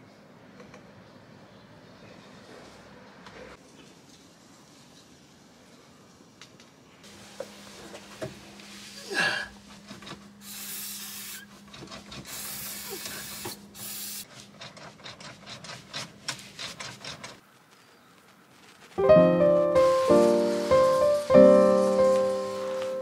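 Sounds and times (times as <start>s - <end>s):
hissing spray bursts: 10.4s - 11.5s, 12.3s - 14.3s, 19.5s - 23.0s
hands scrubbing metal floor: 19.8s - 23.0s.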